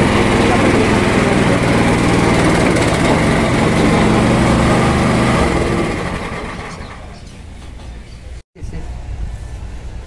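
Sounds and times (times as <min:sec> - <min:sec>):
small engine running: 0:00.0 - 0:07.3.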